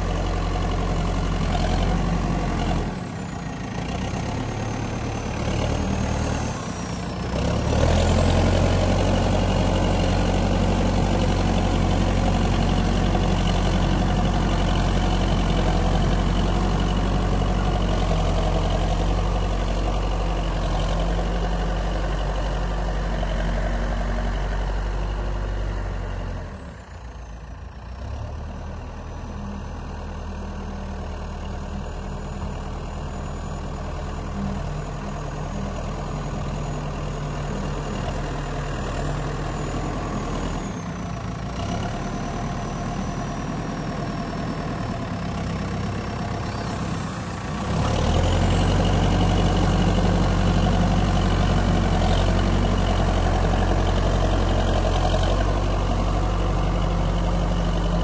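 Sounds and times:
diesel engine running: 0:00.0 - 0:58.0.

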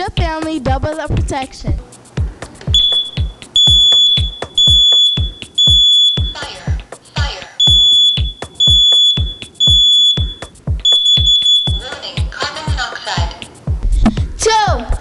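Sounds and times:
background music with steady beat: 0:00.0 - 0:15.0
smoke alarm beeping: 0:02.7 - 0:06.6, 0:07.6 - 0:12.0.

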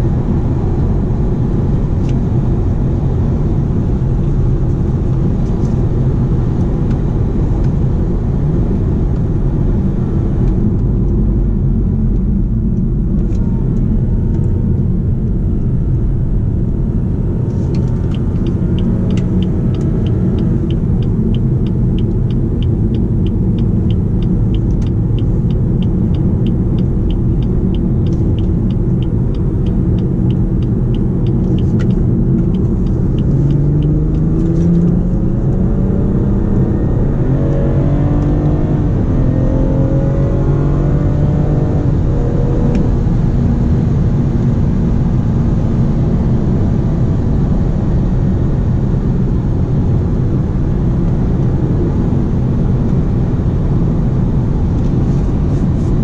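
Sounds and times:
car engine running: 0:00.0 - 0:56.0
road and tyre rumble: 0:00.0 - 0:56.0
light regular ticking: 0:17.7 - 0:34.9.

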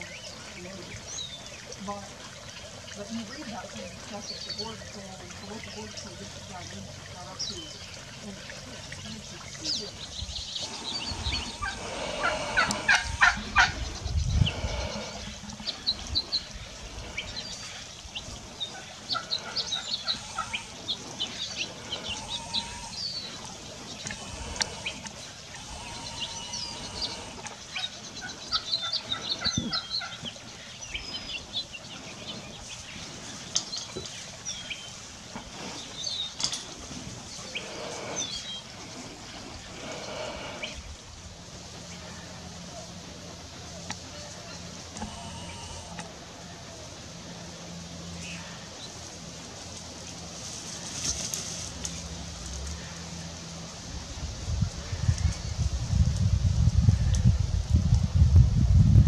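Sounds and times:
songbirds chirping: 0:00.0 - 0:56.3
turkey gobbling: 0:10.6 - 0:13.9, 0:18.7 - 0:20.8.

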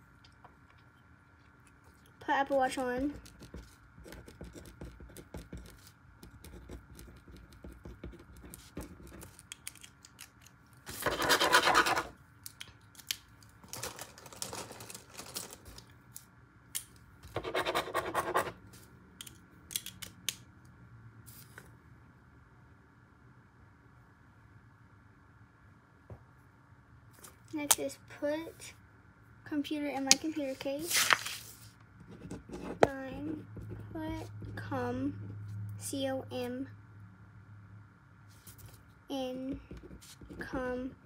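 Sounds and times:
pen scratching on paper: 0:03.1 - 0:09.4, 0:10.9 - 0:12.1, 0:17.3 - 0:18.6, 0:32.0 - 0:34.5.

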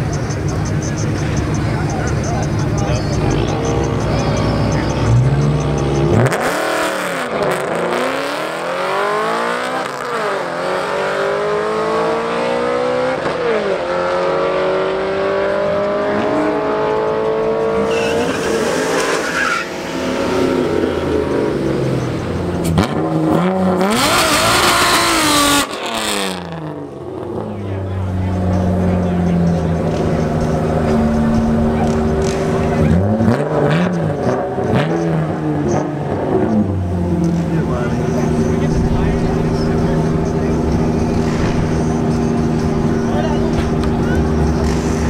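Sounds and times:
cars accelerating hard: 0:00.0 - 0:45.0
small car engine revving: 0:00.4 - 0:45.0.

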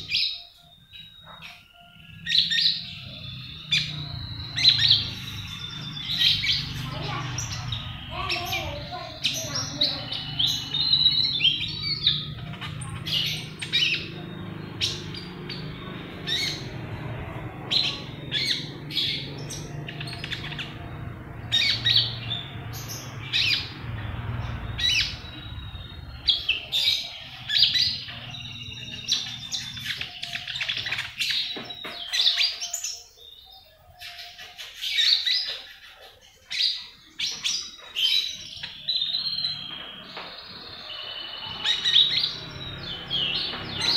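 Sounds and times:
parakeet chirping: 0:00.0 - 0:43.9.

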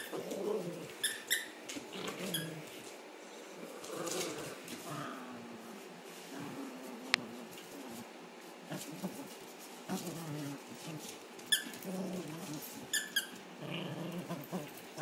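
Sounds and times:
squeaky dog toy squeaking: 0:01.0 - 0:01.6, 0:12.9 - 0:13.4.

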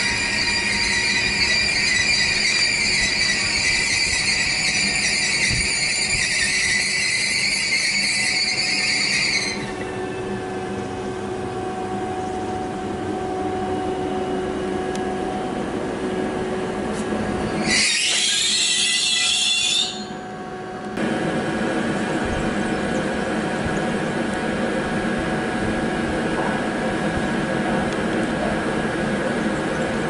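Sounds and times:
high-pitched train squeal: 0:00.0 - 0:20.9
approaching train running noise: 0:00.0 - 0:30.0
train running hum: 0:00.0 - 0:30.0.

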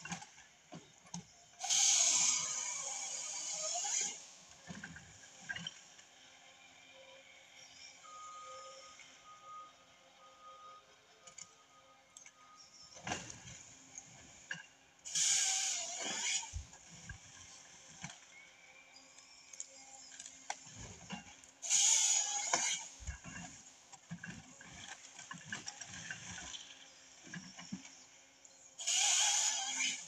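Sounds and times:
chainsaw cutting through log: 0:01.6 - 0:04.3, 0:15.1 - 0:16.7, 0:21.6 - 0:23.4, 0:28.8 - 0:30.0.

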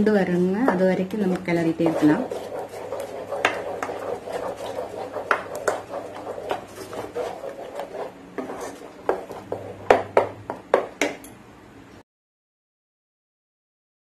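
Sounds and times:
wooden spatula scraping paste in pan: 0:00.6 - 0:10.3
spatula knocking against pan: 0:01.4 - 0:11.2.

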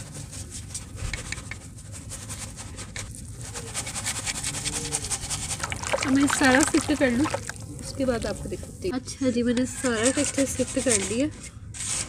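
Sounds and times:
mud scraping through a sieve: 0:02.0 - 0:08.9.

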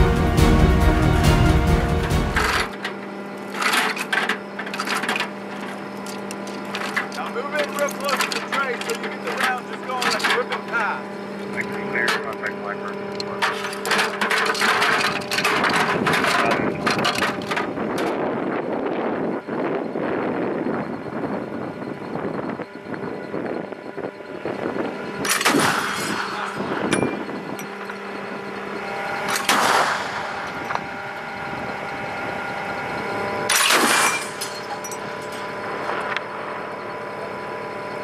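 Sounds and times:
steady mechanical hum: 0:00.0 - 0:38.0
chain gun firing bursts: 0:25.3 - 0:26.4, 0:29.3 - 0:30.4.

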